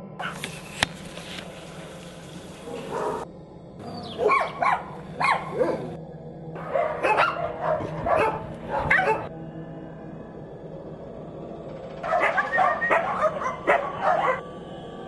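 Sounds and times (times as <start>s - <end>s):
dogs barking: 0.2s - 0.5s, 2.6s - 3.3s, 3.9s - 6.0s, 6.6s - 9.3s, 12.0s - 14.5s.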